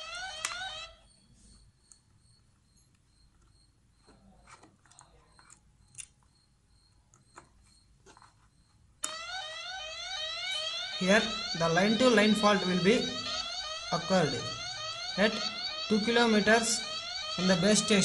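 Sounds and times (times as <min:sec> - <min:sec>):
phone siren alarm: 0:00.0 - 0:01.7, 0:09.0 - 0:18.0.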